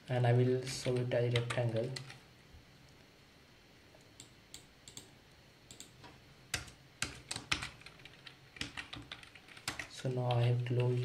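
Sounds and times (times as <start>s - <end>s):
keyboard typing: 5.7s - 11.0s.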